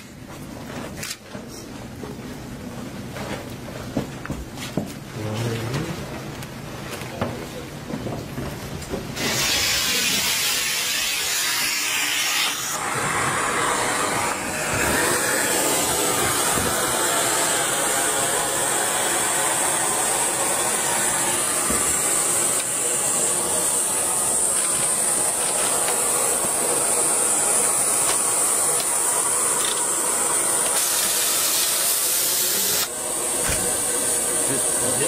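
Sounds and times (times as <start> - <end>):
rushing air hiss: 9.2 - 35.0.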